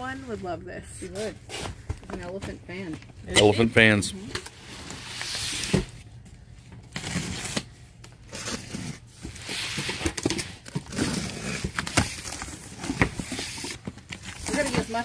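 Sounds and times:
box cutter slitting packing tape: 0:06.9 - 0:07.7, 0:08.3 - 0:13.8.

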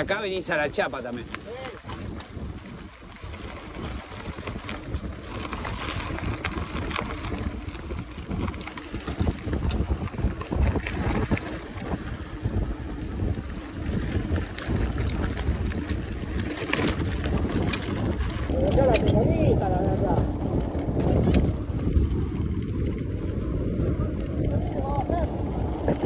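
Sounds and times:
bike clicks and rattles: 0:00.0 - 0:26.0
wind buffeting microphone: 0:00.0 - 0:26.0.

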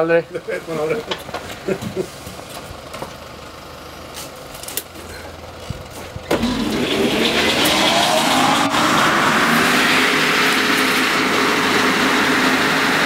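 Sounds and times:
circular saw machinery whining: 0:06.3 - 0:13.0.

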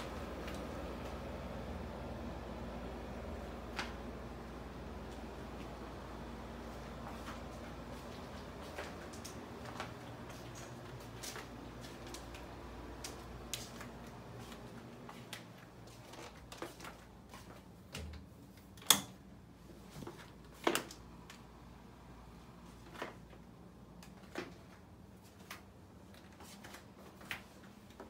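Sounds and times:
faint room hum: 0:00.0 - 0:28.0
footsteps on hardwood floor: 0:06.6 - 0:17.7.

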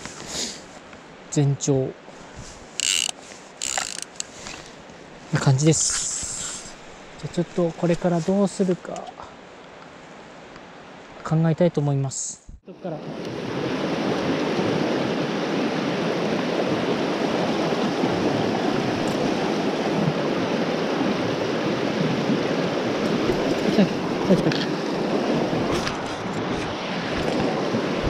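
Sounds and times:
stream rushing over rocks: 0:13.0 - 0:28.0.

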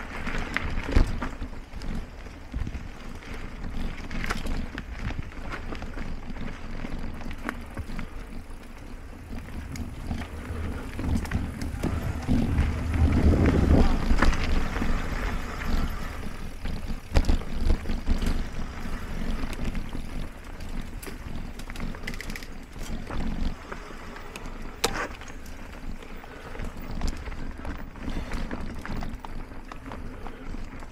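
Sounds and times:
bike tyres rumbling on dirt: 0:00.0 - 0:30.9
wind on microphone: 0:09.2 - 0:20.1.

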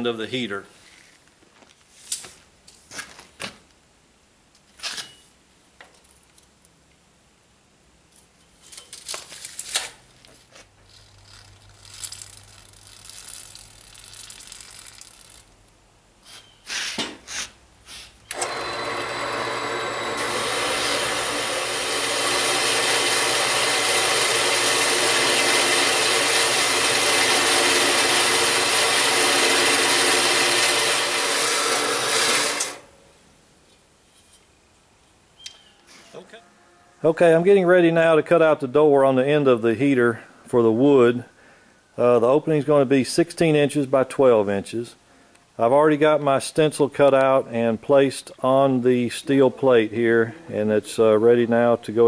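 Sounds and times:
bandsaw blade grinding steel pipe: 0:18.3 - 0:32.8
bandsaw motor humming: 0:18.3 - 0:32.9.

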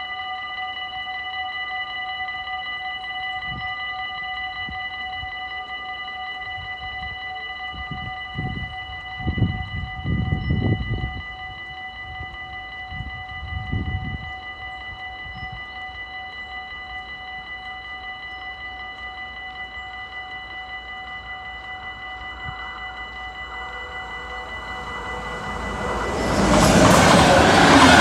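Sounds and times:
level-crossing warning bell: 0:00.0 - 0:28.0.

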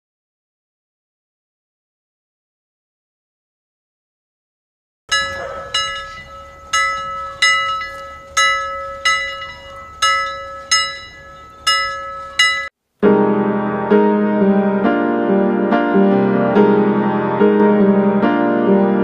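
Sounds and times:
bell ringing: 0:05.1 - 0:12.7.

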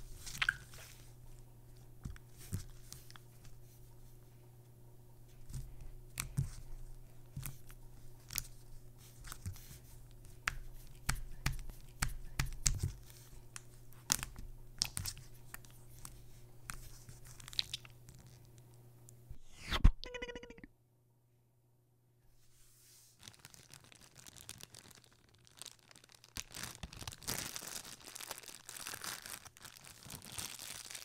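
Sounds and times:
steady low hum: 0:00.0 - 0:22.8.

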